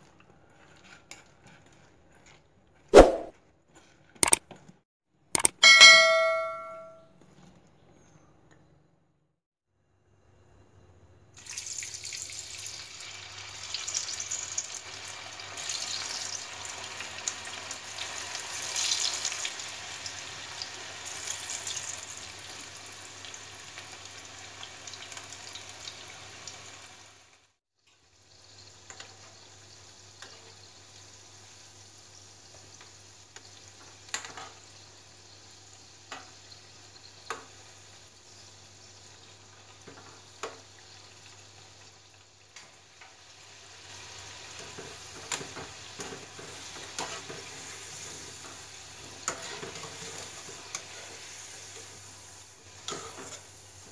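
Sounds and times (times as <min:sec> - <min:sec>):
spoon tapping metal pan: 0:05.4 - 0:07.0
food sizzling in hot oil: 0:11.4 - 0:53.9.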